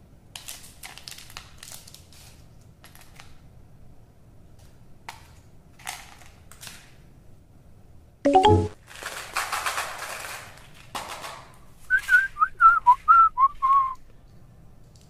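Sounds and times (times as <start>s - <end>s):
wrapper crinkling: 0.4s - 3.2s, 8.8s - 11.6s.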